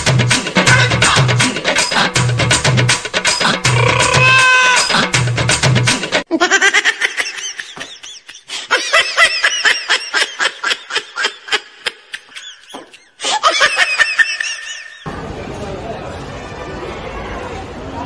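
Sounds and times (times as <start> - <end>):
high-pitched laughter: 6.3 - 15.0.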